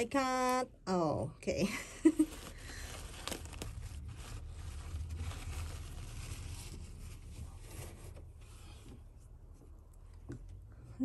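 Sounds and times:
steady low rumble: 0:01.3 - 0:07.6
wrapping paper rustling and crinkling: 0:01.6 - 0:08.8.

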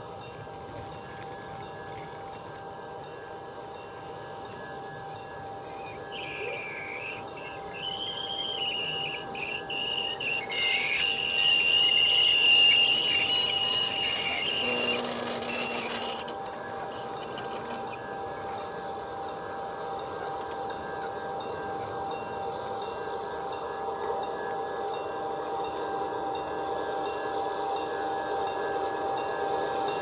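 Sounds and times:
model train cars rolling on track: 0:00.0 - 0:30.0
high-pitched squeal: 0:05.6 - 0:18.2.

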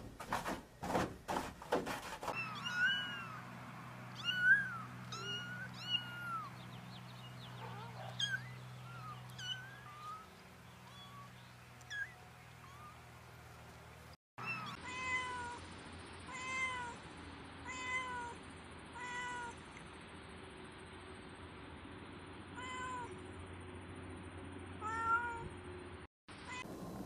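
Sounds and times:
cat meowing: 0:02.4 - 0:03.4, 0:04.2 - 0:06.5, 0:07.6 - 0:11.3, 0:22.6 - 0:23.1, 0:24.8 - 0:25.5
kittens mewing: 0:02.4 - 0:03.5, 0:04.2 - 0:06.6, 0:07.6 - 0:13.0.

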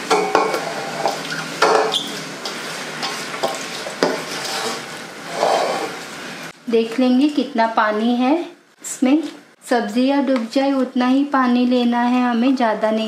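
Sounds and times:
wet greens rustling and scraping: 0:02.1 - 0:06.1.

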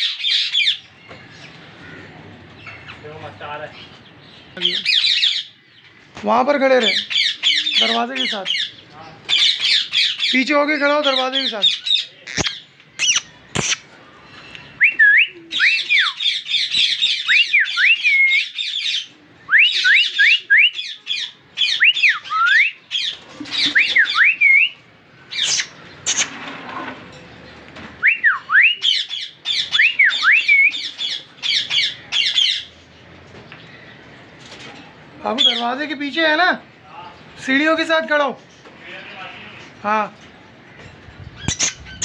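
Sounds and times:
parakeet screeching: 0:11.0 - 0:13.8, 0:41.4 - 0:42.0.

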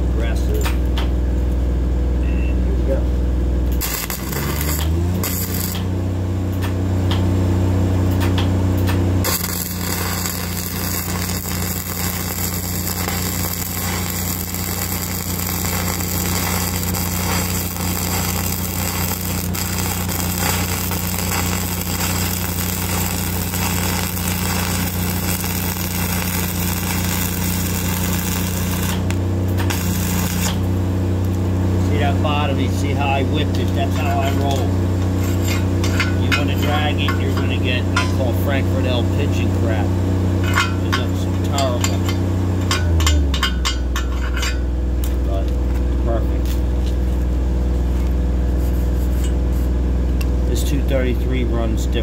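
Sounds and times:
engine humming: 0:00.0 - 0:52.0
arc welding crackle and hiss: 0:03.7 - 0:06.0, 0:08.1 - 0:37.8, 0:47.9 - 0:49.8.

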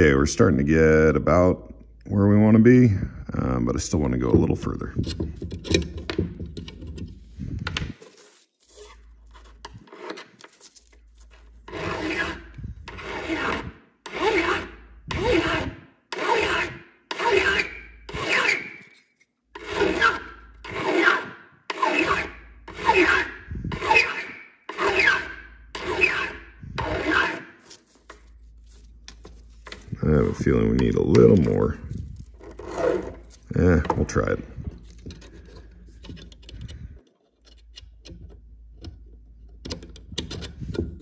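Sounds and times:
hand file scraping metal: 0:06.6 - 0:38.0.

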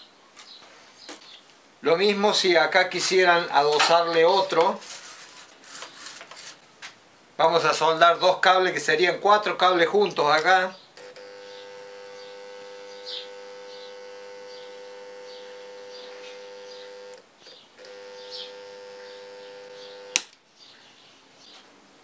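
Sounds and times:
faint electrical crackles: 0:10.3 - 0:20.4
transformer humming: 0:11.2 - 0:17.2
sharp switch click: 0:20.1 - 0:20.4.

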